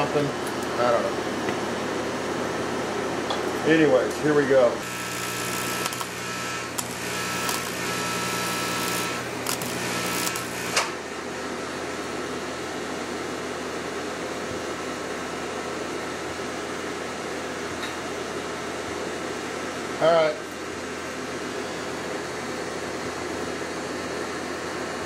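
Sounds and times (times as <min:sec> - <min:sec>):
welding arc buzzing and crackling: 0:03.6 - 0:11.2.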